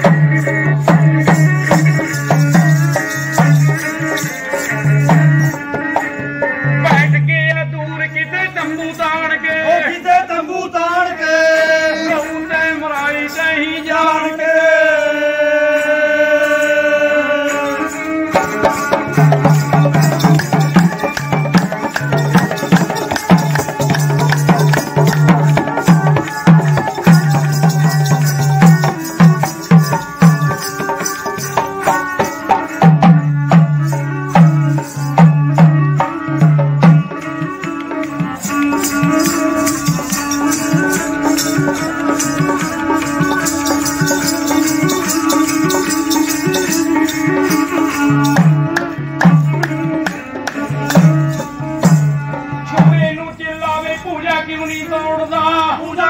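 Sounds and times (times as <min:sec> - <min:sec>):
dholak drum beating: 0:00.0 - 0:10.3, 0:17.4 - 0:56.0
bowed string instrument: 0:17.3 - 0:53.2.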